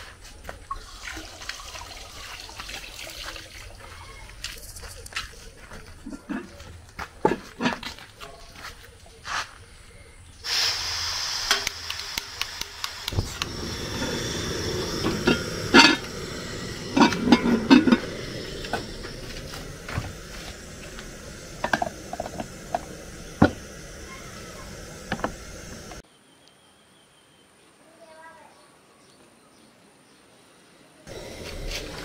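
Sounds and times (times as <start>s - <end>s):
gas burner hissing: 10.3s - 26.0s, 31.1s - 32.0s
low flame rumble: 13.0s - 26.0s, 31.1s - 32.0s.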